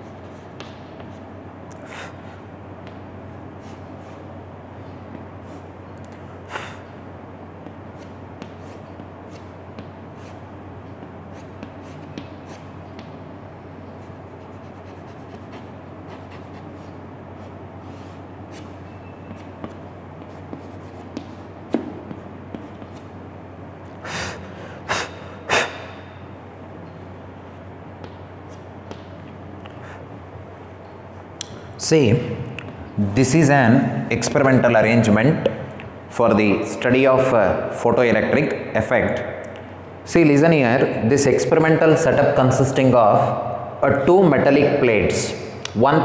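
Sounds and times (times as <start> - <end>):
steady low hum: 0.0 - 46.0
chalk scratching on blackboard: 7.9 - 10.4, 11.3 - 13.1, 14.0 - 23.1.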